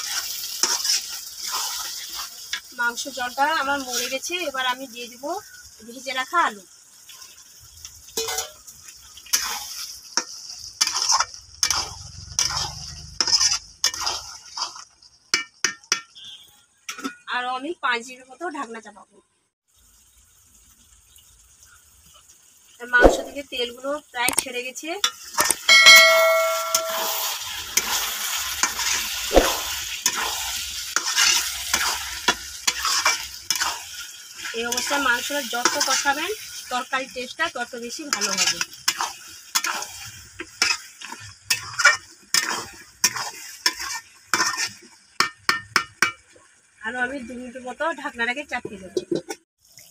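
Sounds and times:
spatula scraping a pan: 0.0s - 2.7s, 8.2s - 17.2s, 25.1s - 36.3s, 38.1s - 45.6s
curry sizzling in a pan: 0.0s - 19.0s, 19.6s - 49.9s
frying in oil hiss: 0.0s - 49.9s
metal clang: 25.7s - 27.2s.

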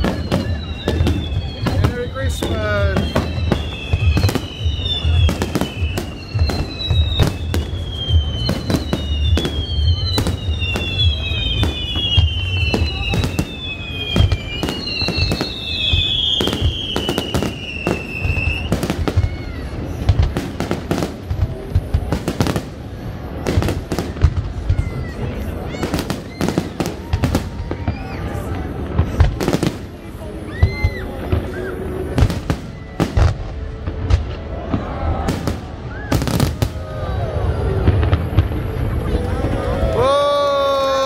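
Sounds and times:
falling whistles: 0.0s - 19.6s, 30.5s - 33.4s
fireworks bangs: 0.0s - 41.0s.

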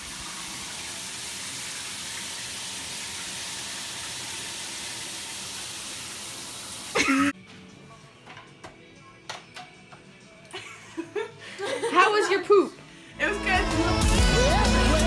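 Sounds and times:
water running from bathtub tap: 0.0s - 7.0s.

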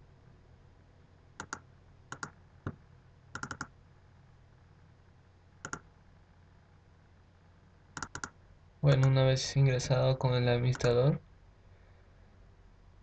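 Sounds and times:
low steady hum: 0.0s - 13.0s
computer mouse clicks: 1.4s - 3.7s, 5.6s - 5.9s, 8.0s - 8.4s.

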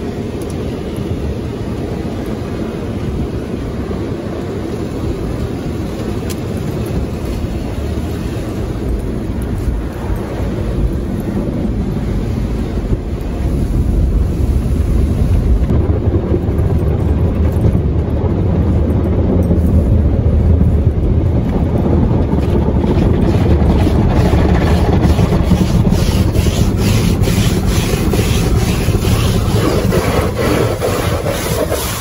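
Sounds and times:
car wash machinery rumbling: 0.0s - 32.0s
brushes slapping against car: 22.4s - 32.0s.

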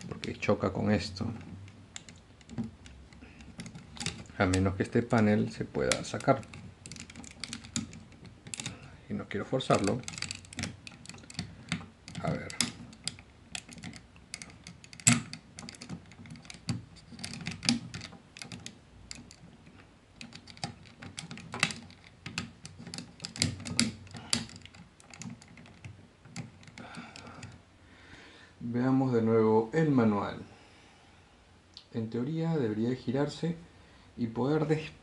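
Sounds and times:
plastic toy parts clicking: 1.4s - 8.9s, 9.7s - 19.5s, 20.2s - 27.6s.

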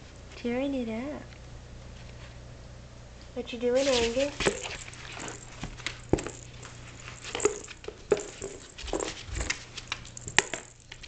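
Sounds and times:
puppy tearing cardboard: 3.8s - 6.2s.

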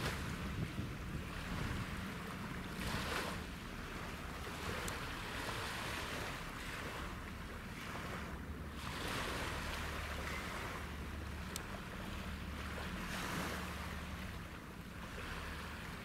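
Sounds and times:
low ship engine hum: 0.0s - 16.0s
small waves washing: 0.0s - 16.0s
wind on microphone: 0.0s - 16.0s.

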